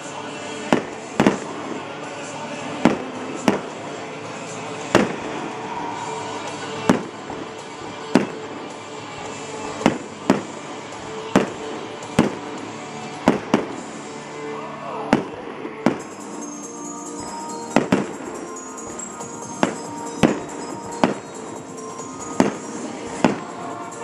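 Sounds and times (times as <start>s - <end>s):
music playing: 0.0s - 24.0s
firework shells bursting: 6.8s - 8.6s, 15.9s - 23.9s.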